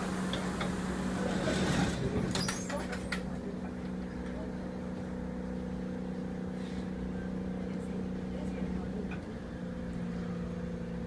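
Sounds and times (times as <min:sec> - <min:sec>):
sliding doors closing: 0:00.0 - 0:03.5
subway car electrical hum: 0:00.0 - 0:11.0.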